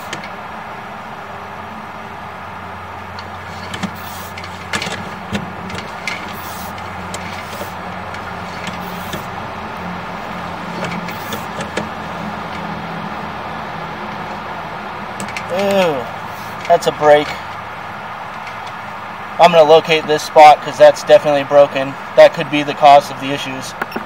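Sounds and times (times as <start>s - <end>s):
cable scraping hisses: 3.4s - 4.7s, 5.9s - 9.3s, 11.0s - 11.7s, 16.2s - 16.7s.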